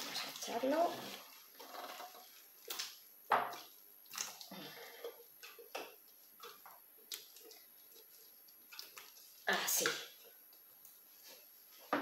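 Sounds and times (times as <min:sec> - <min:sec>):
food dropping with wet plops: 0:02.6 - 0:04.5, 0:05.4 - 0:08.0.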